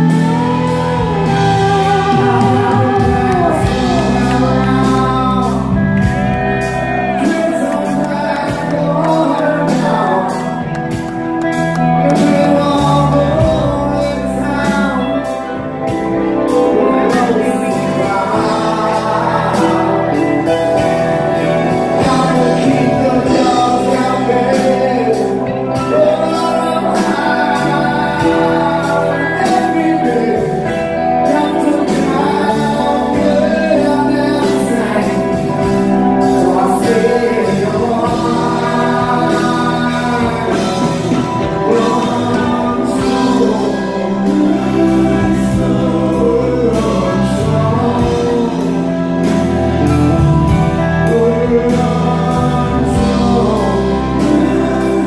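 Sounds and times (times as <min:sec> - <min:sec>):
live rock band playing: 0:00.0 - 0:55.0
person singing: 0:00.0 - 0:55.0.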